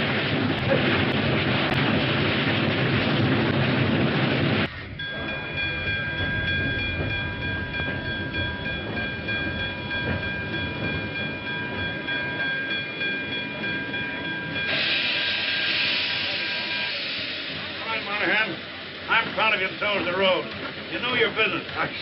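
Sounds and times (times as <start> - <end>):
moving train rumble: 0.0 - 22.0
steam hissing: 12.4 - 22.0
steam locomotive whistle: 14.6 - 17.7.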